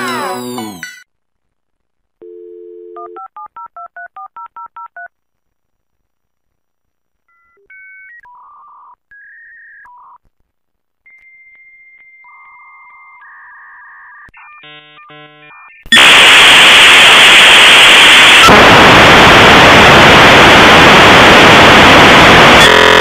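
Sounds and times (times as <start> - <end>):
electronic tones switching pitch: 11.1 - 18.5.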